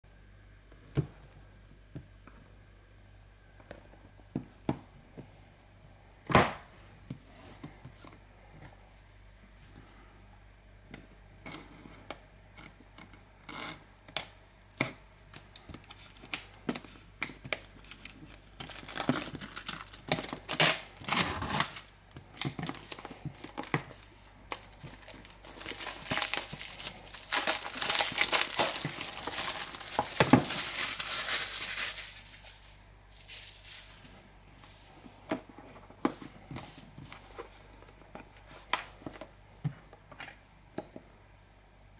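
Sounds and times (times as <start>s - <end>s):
plastic wrap tearing and crinkling: 14.2s - 34.2s.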